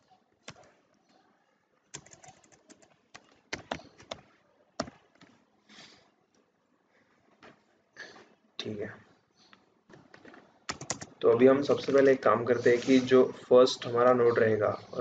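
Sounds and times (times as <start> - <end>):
computer keyboard typing: 1.9 - 5.3, 10.1 - 12.0.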